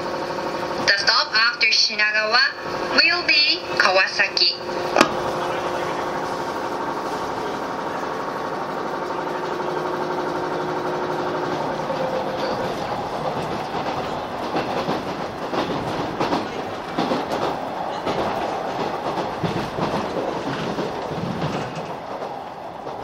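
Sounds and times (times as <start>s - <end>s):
electric train moving: 0.0s - 23.0s
wheels clacking over rail joints: 4.6s - 23.0s.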